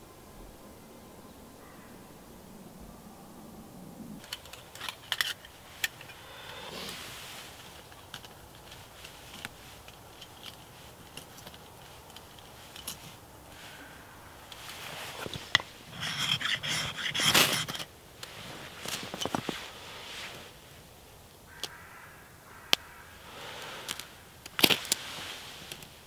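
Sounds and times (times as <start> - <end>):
scraping and rustling: 4.2 - 21.0, 23.3 - 26.0
small clicks and rustles: 4.2 - 21.8, 22.6 - 26.0.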